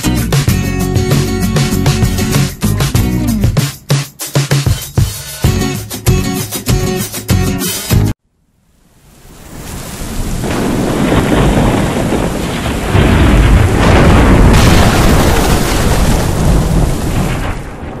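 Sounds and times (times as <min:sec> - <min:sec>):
heavy rain hiss: 0:08.7 - 0:18.0
rolling thunder: 0:09.5 - 0:18.0.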